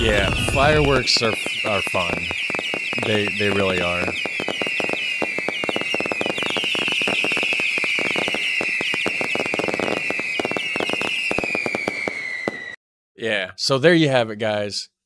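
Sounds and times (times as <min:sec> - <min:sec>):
firework pops and crackles: 0:00.0 - 0:12.8
firework whistles: 0:00.0 - 0:12.8.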